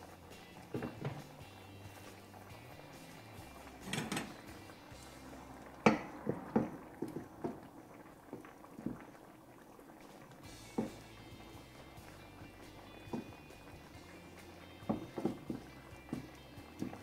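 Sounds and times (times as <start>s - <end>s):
wooden spoon knocking on skillet: 0.7s - 1.4s, 5.8s - 7.6s, 10.6s - 11.1s, 13.1s - 13.4s, 14.8s - 17.0s.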